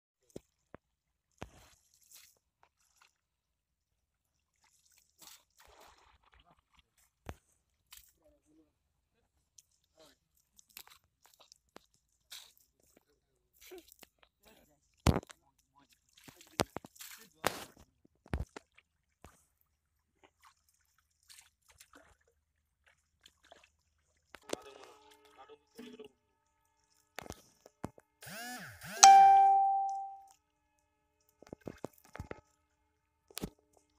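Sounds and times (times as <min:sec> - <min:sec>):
water splashing and sloshing: 0:01.4 - 0:08.2, 0:15.9 - 0:24.6.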